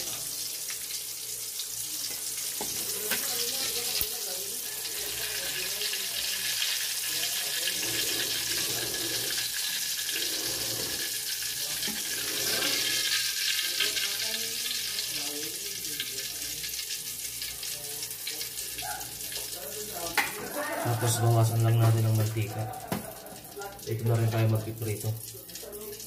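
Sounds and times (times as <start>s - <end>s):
oil sizzling and crackling: 0.0s - 26.0s
metal spatula in pan: 2.0s - 4.1s.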